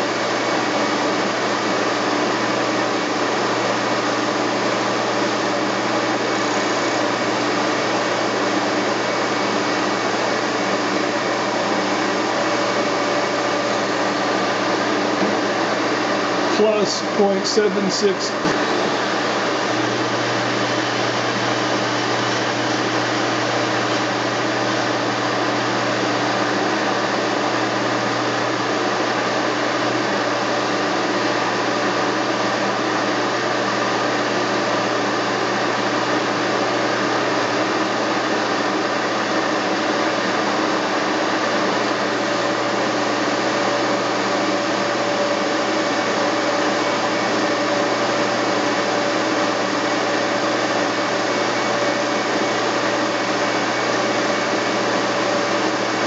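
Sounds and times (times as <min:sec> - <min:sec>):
machinery whirring: 0:11.4 - 0:26.5.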